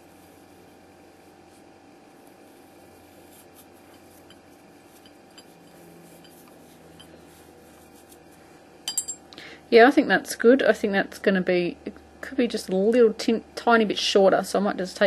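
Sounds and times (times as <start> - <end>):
yarn rubbing on mug: 0.0 - 8.6
low room hum: 0.0 - 15.0.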